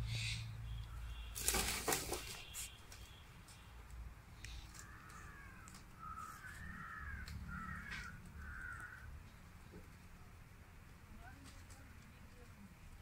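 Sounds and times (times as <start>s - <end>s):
bird calling: 4.5s - 9.1s.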